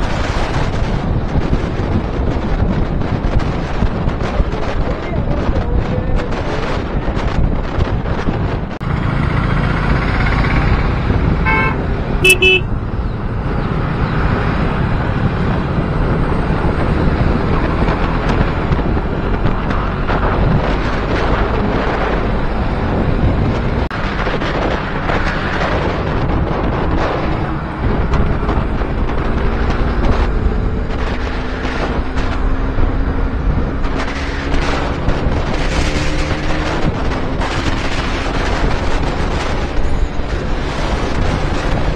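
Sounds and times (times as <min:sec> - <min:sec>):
wind rush on microphone: 0:00.0 - 0:41.9
motorcycle engine: 0:08.6 - 0:41.9
vehicle horn honking: 0:11.4 - 0:12.7.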